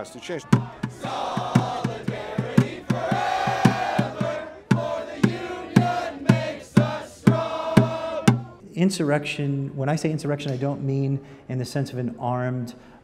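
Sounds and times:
crowd chanting: 0.0 - 8.6
steady drumbeat: 0.4 - 8.6.

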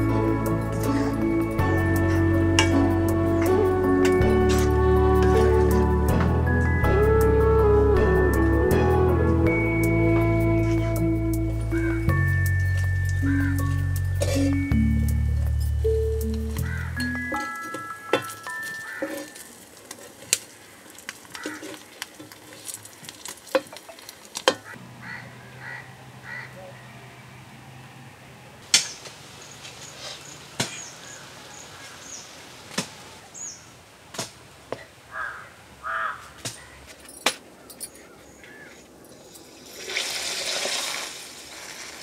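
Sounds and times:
birds calling: 13.2 - 14.8, 15.8 - 19.4, 24.6 - 27.1, 28.7 - 33.8, 37.6 - 39.4
caw-like bird calls: 16.6 - 16.9, 25.0 - 26.8, 35.1 - 36.8, 38.0 - 38.8.

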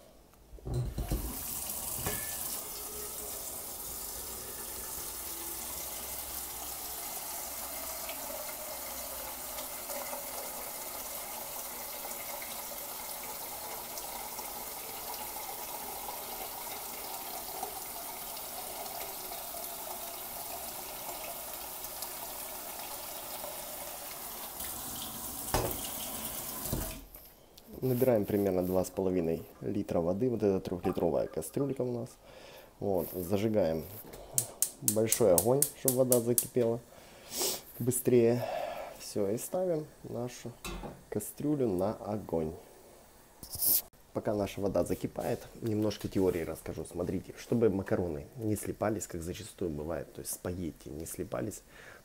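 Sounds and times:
tap water running into a pot: 0.7 - 27.1.

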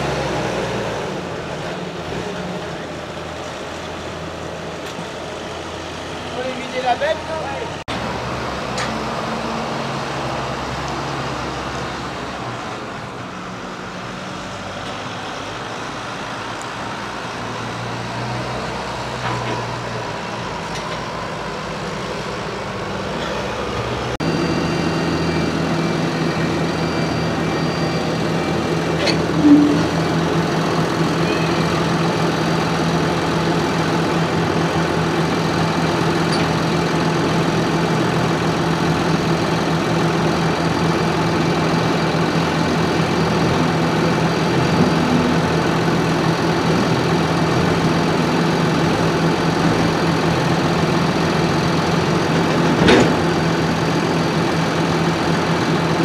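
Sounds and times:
tractor diesel engines running: 0.0 - 56.0
short sharp sound: 29.3 - 30.2.

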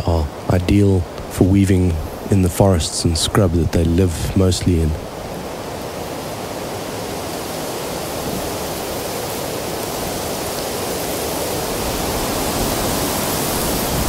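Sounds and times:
wind rushing through dry grass: 0.0 - 14.0.

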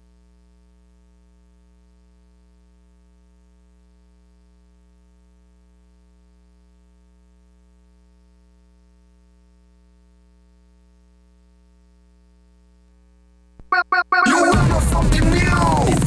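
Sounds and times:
loud burst of music: 13.7 - 16.0.

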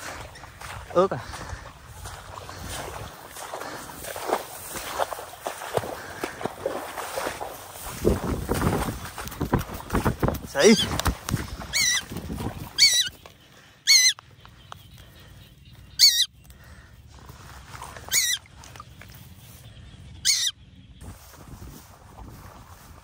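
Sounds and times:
bird squawking harshly: 11.7 - 12.1, 12.8 - 13.2, 13.8 - 14.2, 16.0 - 16.3, 18.0 - 18.5, 20.2 - 20.6.

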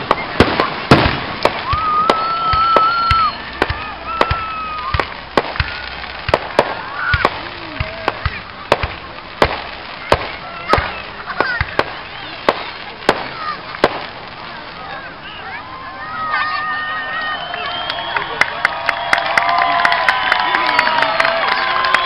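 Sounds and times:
fireworks popping: 0.0 - 15.6
firework whistle: 0.1 - 8.3.

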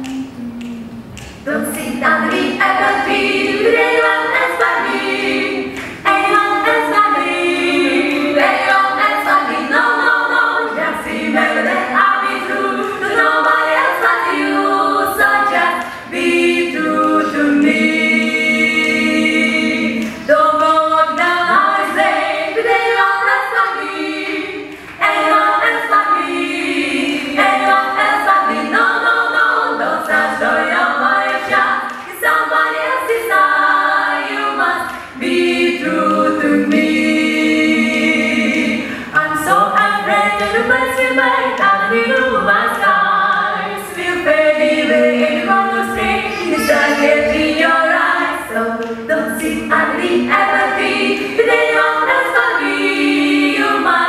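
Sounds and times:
women singing a cappella: 0.0 - 54.0
singers breathing: 38.8 - 39.2.

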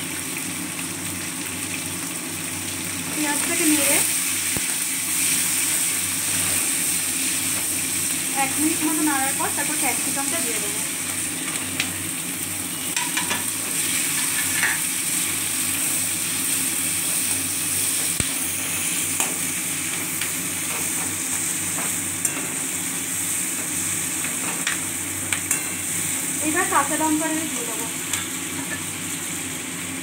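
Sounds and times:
vegetables sizzling in hot oil: 0.0 - 30.0
metal spoon scraping a wok: 13.0 - 14.8.

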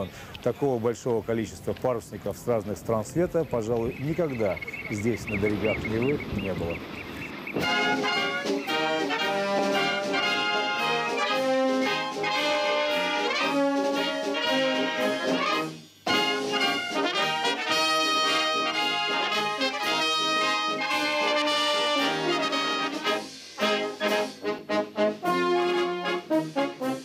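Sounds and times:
brass band playing: 7.4 - 27.0.

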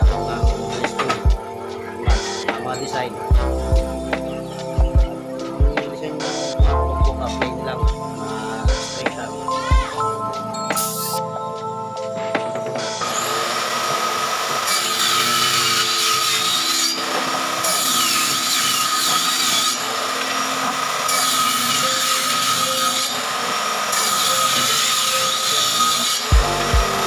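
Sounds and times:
table saw cutting wood: 0.0 - 11.2, 12.2 - 27.0.

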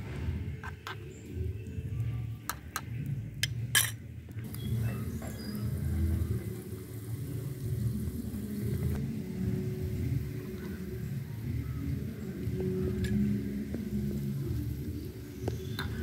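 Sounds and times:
metal spoon clinking pan: 2.5 - 4.0.

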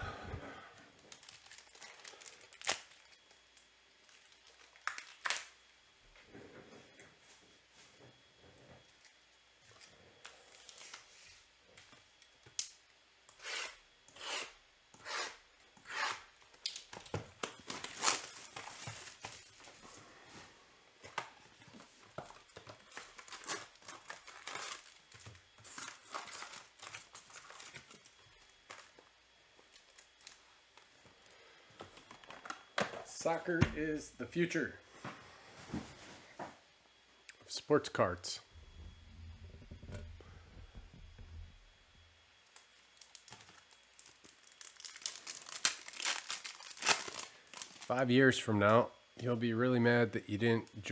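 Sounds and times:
foil wrapper crinkling: 1.0 - 5.6, 16.4 - 19.8, 22.2 - 30.9, 42.5 - 48.0.

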